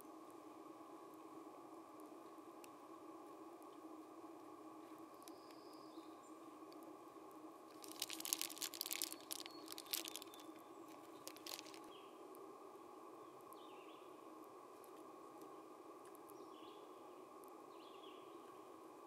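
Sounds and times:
faint steady hum: 0.0s - 19.0s
chipmunk scratching on nylon: 7.7s - 11.9s.

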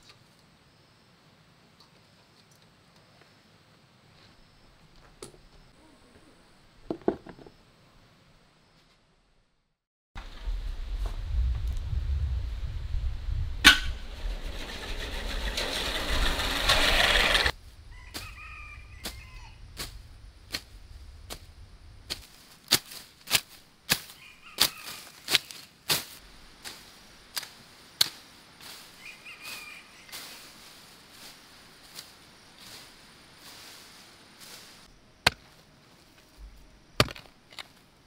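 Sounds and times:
rushing noise with low rumble: 10.2s - 22.4s
birds chirping: 28.9s - 30.6s
hoe chopping into soil: 35.2s - 35.6s, 37.0s - 37.7s.

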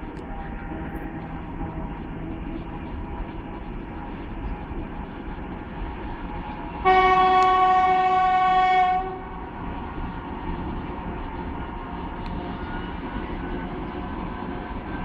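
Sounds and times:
diesel locomotive rumbling: 0.0s - 15.0s
locomotive horn blast: 6.8s - 9.4s.

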